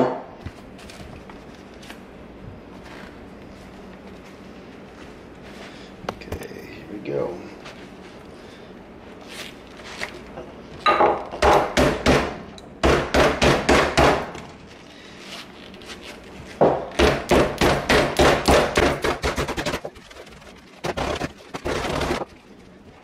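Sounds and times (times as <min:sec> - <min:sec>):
mallet pounding wet leather mitt: 0:16.9 - 0:19.5.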